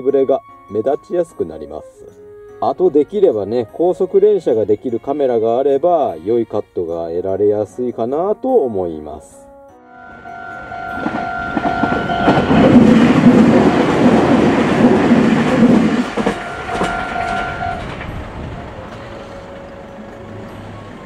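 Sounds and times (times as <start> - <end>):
steady high tone: 9.8 - 21.0
electric train passing: 9.9 - 21.0
wheels clacking over rail joints: 10.4 - 21.0.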